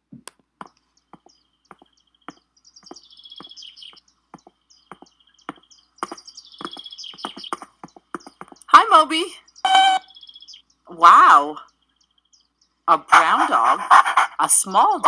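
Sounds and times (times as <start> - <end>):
light tapping footsteps: 0.2 - 8.8
cartoon birds chirping and trilling: 0.6 - 15.0.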